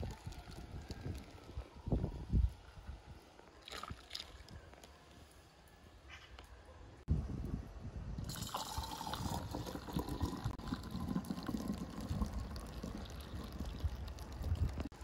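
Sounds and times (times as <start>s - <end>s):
juice pouring into glass jar: 8.2s - 14.9s.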